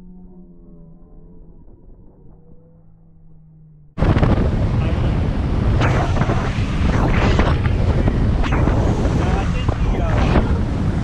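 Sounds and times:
wind buffeting microphone: 0:04.0 - 0:11.0.

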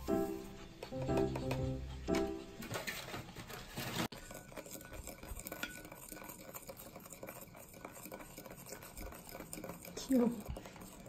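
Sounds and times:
wooden spoon scraping glass bowl: 0:02.9 - 0:11.0.

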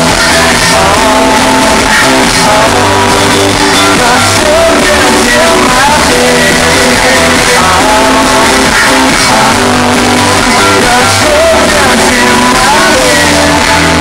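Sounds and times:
live rock band playing: 0:00.0 - 0:14.0
man singing lead vocal: 0:00.0 - 0:14.0.

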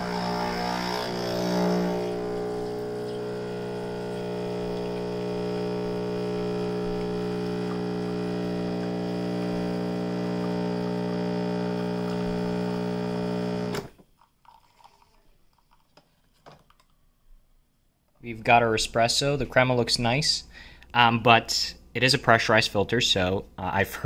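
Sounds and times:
espresso machine pump humming: 0:00.0 - 0:13.9.

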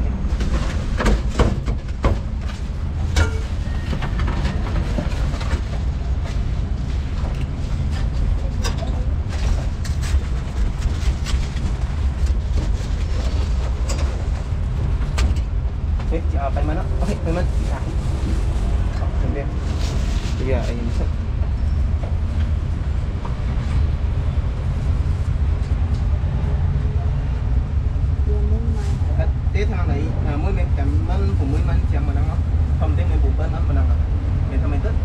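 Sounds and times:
low street rumble: 0:00.0 - 0:35.0
clatters and knocks: 0:00.3 - 0:16.1.

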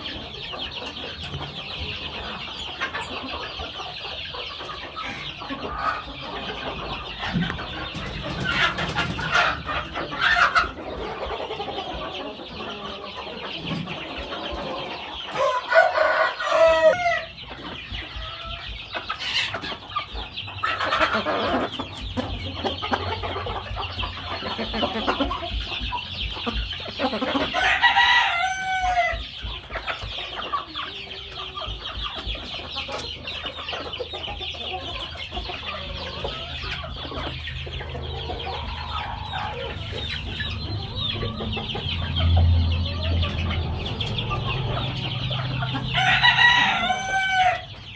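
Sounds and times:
chickens clucking: 0:00.0 - 0:47.9
rooster crowing: 0:15.4 - 0:17.3, 0:27.5 - 0:29.2, 0:45.8 - 0:47.8.

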